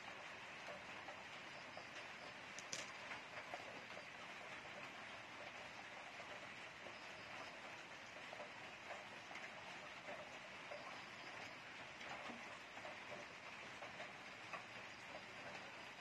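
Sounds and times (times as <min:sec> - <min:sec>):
soft ticks: 0:06.2 - 0:15.7.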